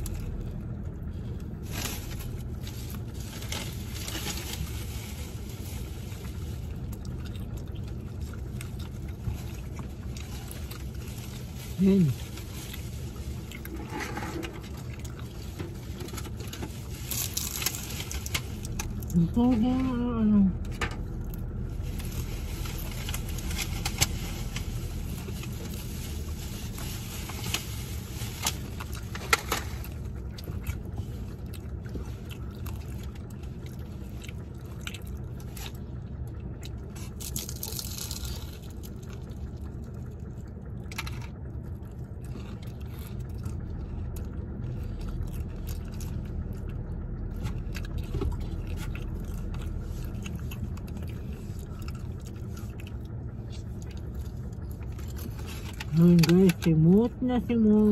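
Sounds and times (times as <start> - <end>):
chewing and crunching: 0.0 - 57.9
low car rumble: 0.0 - 57.9.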